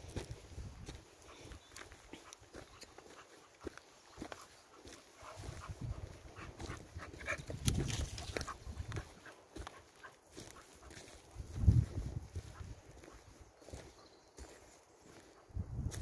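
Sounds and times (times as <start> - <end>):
footsteps crunching on twigs: 0.0 - 16.0
dog panting and snuffling: 1.0 - 11.3.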